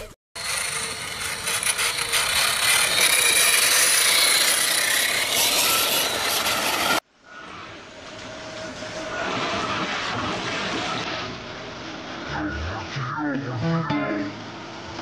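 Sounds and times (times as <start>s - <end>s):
rubber tyres grinding on rock: 0.4s - 7.0s.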